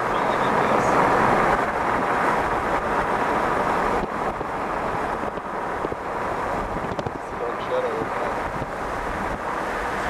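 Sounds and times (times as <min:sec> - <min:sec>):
car road noise: 0:00.0 - 0:10.0
wind rushing: 0:08.0 - 0:10.0.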